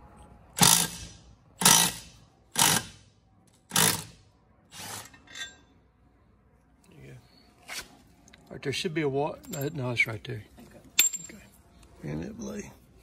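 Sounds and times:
impact wrench hammering on bolt: 0:00.6 - 0:03.0.

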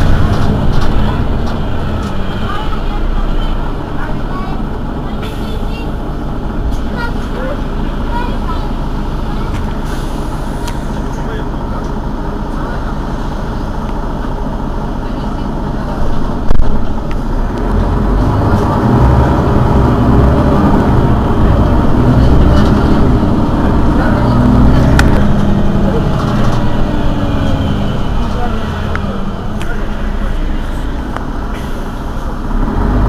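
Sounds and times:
bus engine running: 0:00.0 - 0:33.0.

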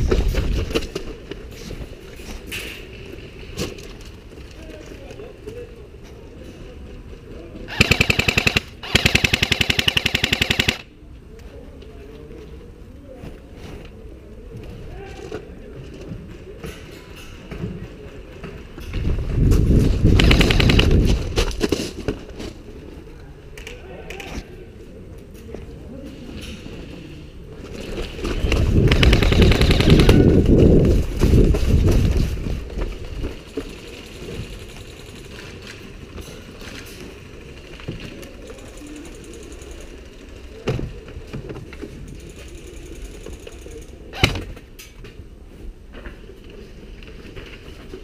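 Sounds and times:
airsoft rifle full-auto burst: 0:07.7 - 0:10.9, 0:20.2 - 0:21.0, 0:28.8 - 0:30.4.

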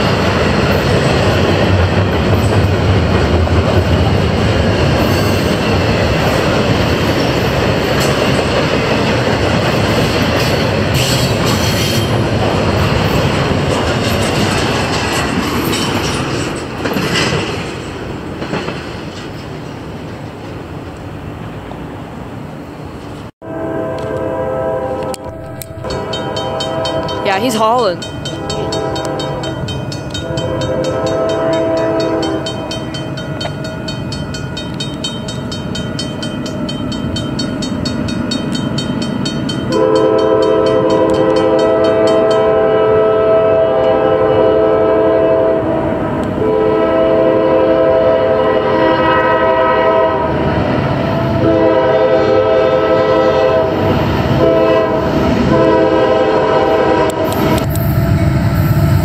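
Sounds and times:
train rumble: 0:00.0 - 0:59.0
locomotive air horn blasts: 0:23.4 - 0:27.3, 0:28.3 - 0:29.6, 0:30.2 - 0:32.5, 0:39.7 - 0:50.4, 0:51.4 - 0:53.8, 0:54.4 - 0:57.6
crossing bell ringing: 0:24.9 - 0:42.8.

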